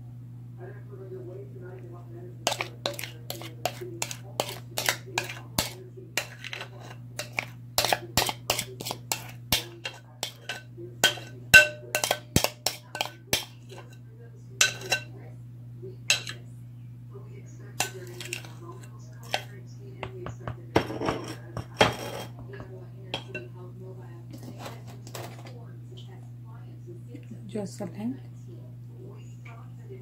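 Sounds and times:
metal utensil scraping a bowl: 2.4 - 14.0, 14.6 - 15.1, 16.1 - 16.4, 17.8 - 19.6, 20.8 - 23.5.

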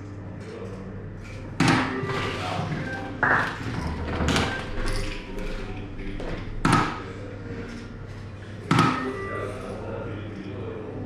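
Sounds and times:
darts thudding into dartboard: 6.6 - 7.0.

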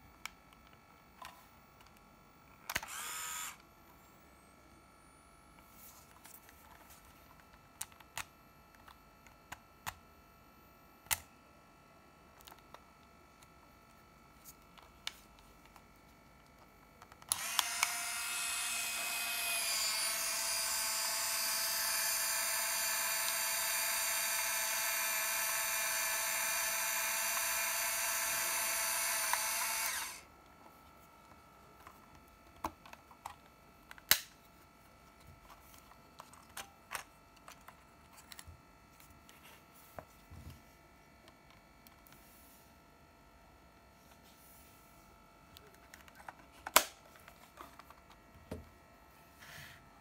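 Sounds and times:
camera film motor whine: 2.7 - 3.7, 17.2 - 30.3.

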